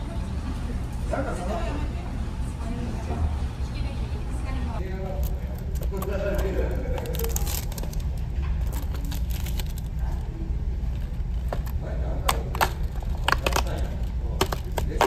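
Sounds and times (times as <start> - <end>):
paper crackling: 4.9 - 15.0
cardboard box tearing open: 5.2 - 8.0, 8.6 - 9.9.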